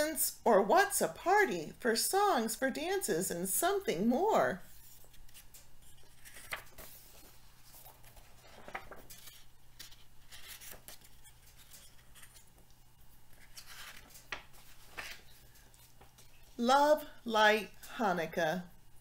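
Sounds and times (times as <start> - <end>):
steady low hum: 1.6 - 19.0
book pages turning: 4.7 - 16.5.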